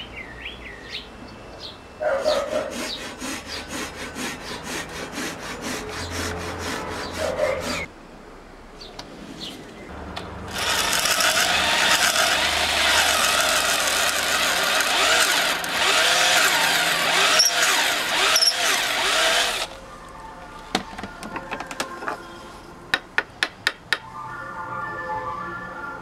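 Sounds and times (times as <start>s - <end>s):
power drill boring into wood: 10.5s - 19.8s.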